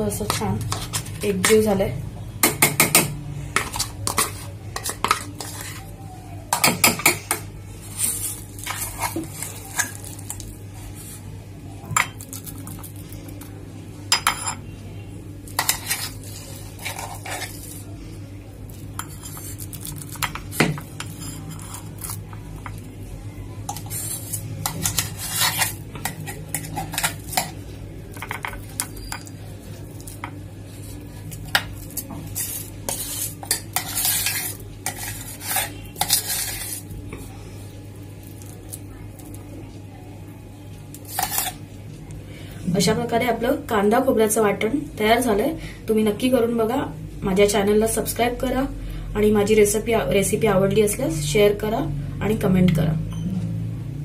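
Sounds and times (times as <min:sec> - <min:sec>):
metal spoon scraping and clinking: 0:00.2 - 0:01.7, 0:02.5 - 0:05.9, 0:06.5 - 0:10.4, 0:14.1 - 0:14.6, 0:15.5 - 0:17.9, 0:19.0 - 0:22.8, 0:23.7 - 0:29.4, 0:30.0 - 0:36.9, 0:41.0 - 0:41.6.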